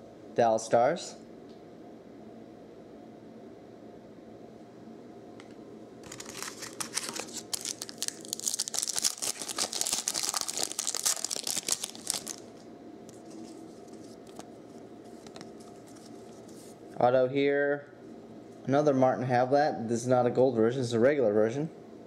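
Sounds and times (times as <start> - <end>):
foil wrapper tearing and crinkling: 6.0 - 14.4.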